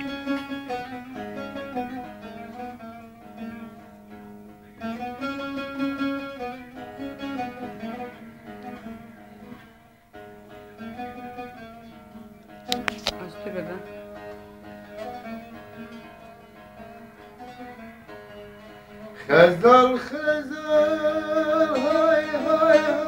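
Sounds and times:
plucked string folk melody: 0.0s - 23.0s.

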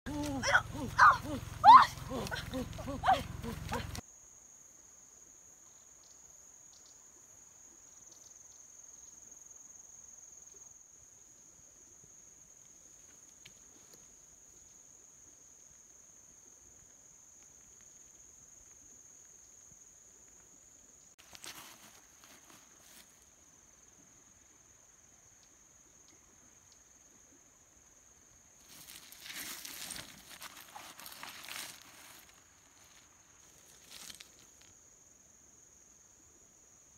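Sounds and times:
insect trilling: 0.1s - 4.0s.

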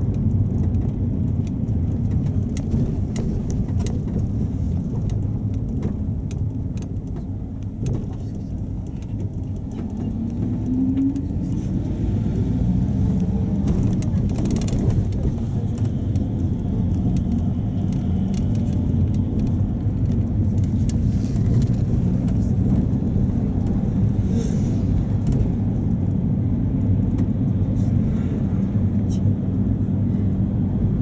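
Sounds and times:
light clicks and rattles: 0.0s - 11.6s
diesel engine drone: 0.0s - 31.0s
road rumble: 0.0s - 31.0s.

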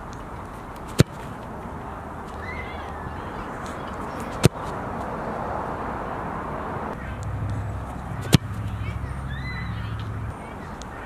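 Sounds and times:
outdoor background noise: 0.0s - 11.0s
soccer ball kicked thud: 0.9s - 1.4s, 4.3s - 4.8s, 8.2s - 8.8s.

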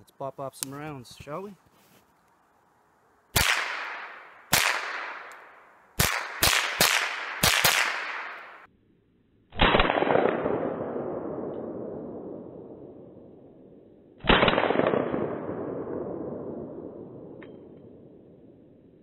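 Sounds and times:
rifle shots with echo: 3.3s - 8.7s, 9.6s - 13.2s, 14.2s - 18.1s.

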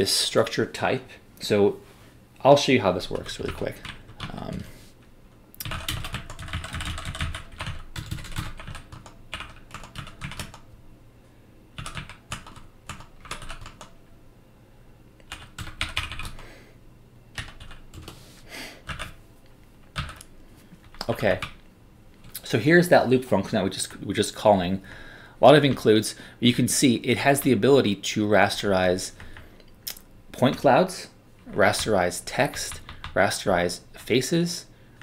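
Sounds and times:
typing on computer keyboard: 5.6s - 10.7s, 11.8s - 14.0s, 15.2s - 16.4s, 17.4s - 18.2s, 18.9s - 19.2s, 19.9s - 21.6s, 32.5s - 33.2s.

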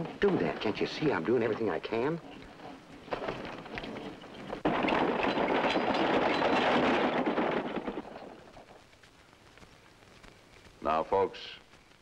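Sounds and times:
wooden wagon rattling: 0.0s - 8.8s.

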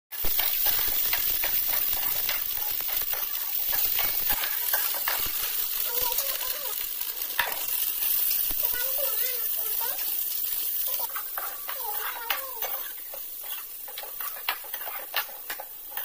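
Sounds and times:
peas sizzling in a wok: 0.1s - 16.0s
metal spatula scraping a pan: 0.2s - 16.0s.

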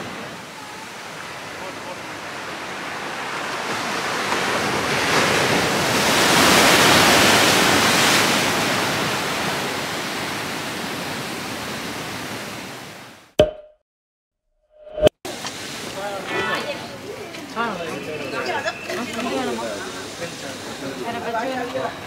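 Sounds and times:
waves breaking on rocks: 0.0s - 12.7s.

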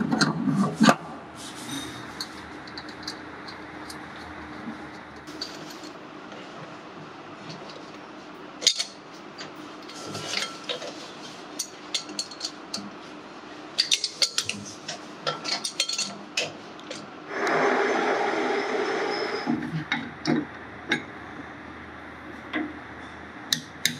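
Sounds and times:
steady loud noise: 17.1s - 23.5s.

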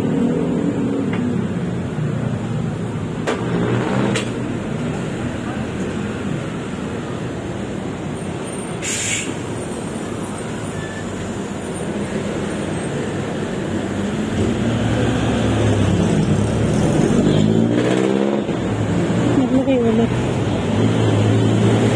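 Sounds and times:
road traffic engine noise: 0.0s - 21.9s
engine speeding up: 3.2s - 5.1s, 13.8s - 21.9s
air hiss: 8.8s - 9.6s.

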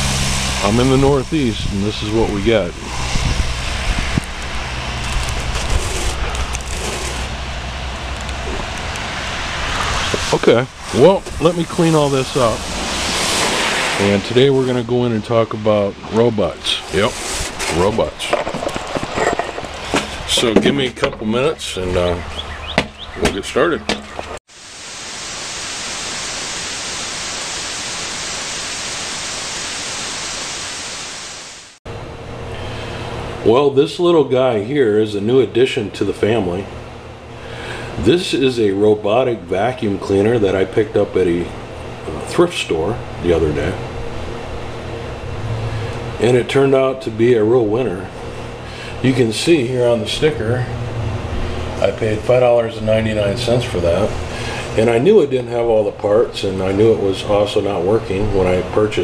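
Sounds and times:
tyres hissing on wet road: 0.0s - 17.6s, 24.5s - 31.8s, 53.0s - 55.2s
white noise static hiss: 0.0s - 22.2s, 23.2s - 59.0s
low traffic rumble: 0.0s - 24.8s, 31.9s - 59.0s.

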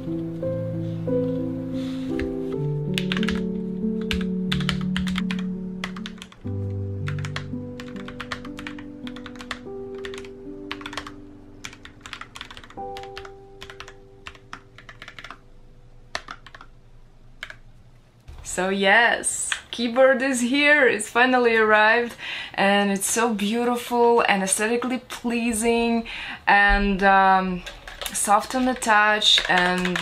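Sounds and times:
background music with held notes: 0.0s - 16.9s.

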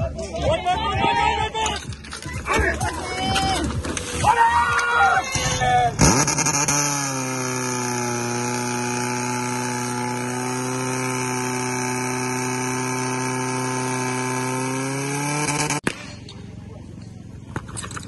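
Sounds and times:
pump engine revving: 6.0s - 15.8s.

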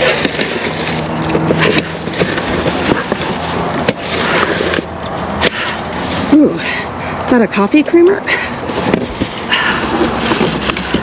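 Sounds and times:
plastic bags crinkling: 0.0s - 6.4s.

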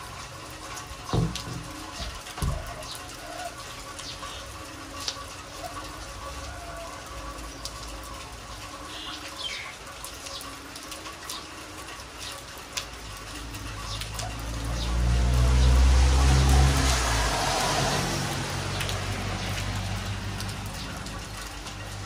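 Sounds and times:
drips and splashes: 0.0s - 22.0s
heavy rain on concrete: 0.0s - 22.0s
approaching vehicle rumble: 13.5s - 22.0s.

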